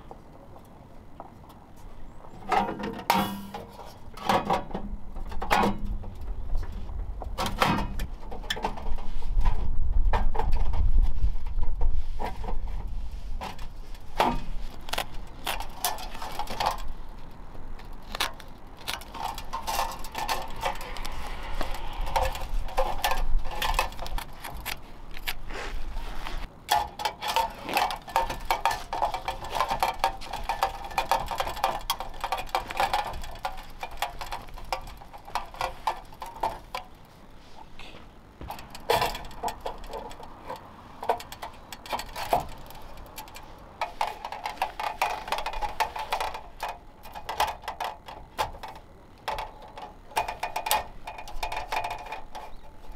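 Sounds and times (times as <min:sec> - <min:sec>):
wind rumble on microphone: 0:04.9 - 0:26.5.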